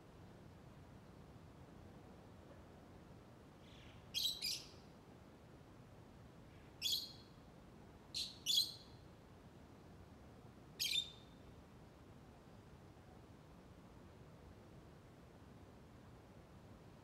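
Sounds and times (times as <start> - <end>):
bird chirping high-pitched: 4.2 - 4.7, 6.8 - 7.2, 8.2 - 8.8, 10.8 - 11.2.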